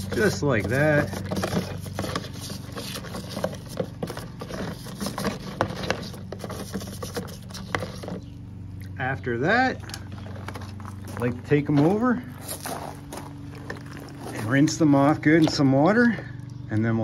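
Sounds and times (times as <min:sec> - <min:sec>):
brush scrubbing rocks in water: 0:00.0 - 0:08.2
steady low hum: 0:00.0 - 0:17.0.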